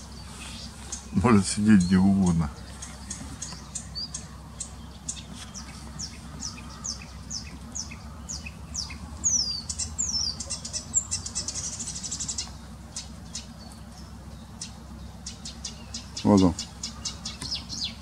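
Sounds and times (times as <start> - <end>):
buzzy bird trill: 0.0 - 18.0
warbler singing: 0.0 - 18.0.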